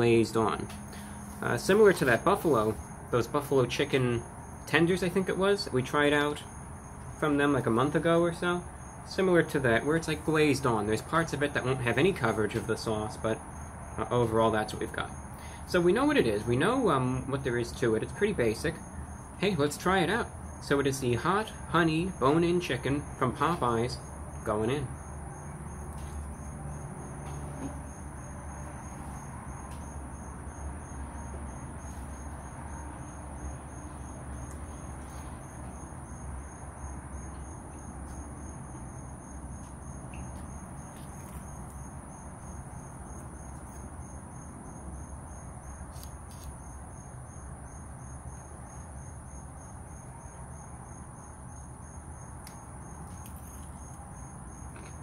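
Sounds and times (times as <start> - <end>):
crickets trilling: 0.0 - 55.0
low background hum: 0.0 - 55.0.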